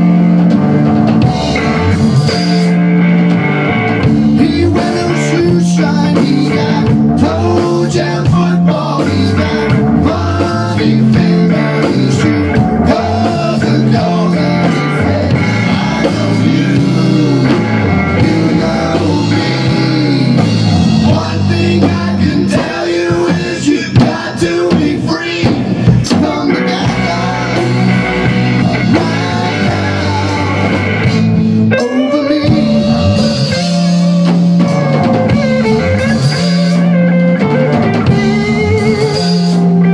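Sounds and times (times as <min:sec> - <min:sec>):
drum kit: 0:00.0 - 0:39.9
electric bass: 0:00.0 - 0:39.9
electric guitar: 0:00.0 - 0:39.9.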